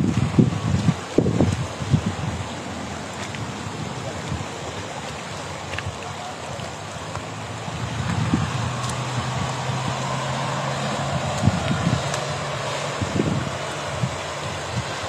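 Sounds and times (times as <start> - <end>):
rainwater rushing along channel: 0.0 - 15.0
vehicle engine humming: 0.0 - 15.0
wind on microphone: 0.0 - 15.0.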